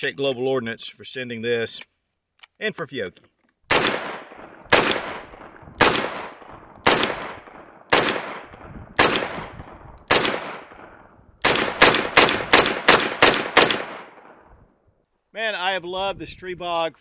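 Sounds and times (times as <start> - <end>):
pistol shots echoing: 3.7 - 14.6.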